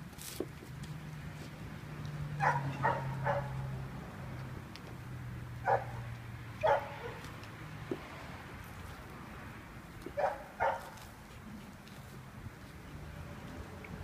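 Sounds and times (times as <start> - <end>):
dog barking: 2.4 - 3.6, 5.6 - 6.0, 6.6 - 7.3, 10.2 - 11.0.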